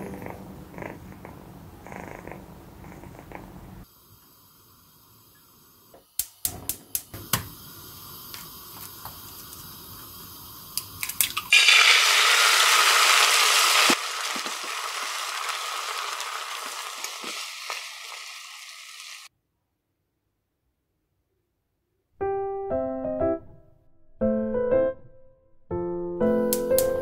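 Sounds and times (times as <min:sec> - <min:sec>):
loud steady hiss: 0:03.8 - 0:14.2
crackles: 0:12.7 - 0:19.3.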